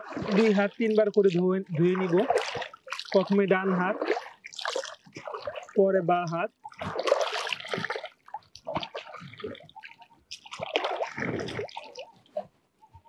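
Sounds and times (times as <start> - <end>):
water splashing and dripping: 0.0 - 12.4.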